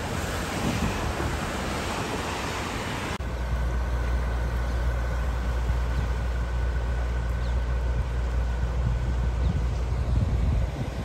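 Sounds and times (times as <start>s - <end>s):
rushing floodwater hiss: 0.0s - 3.2s
steady low rumble: 3.2s - 11.0s.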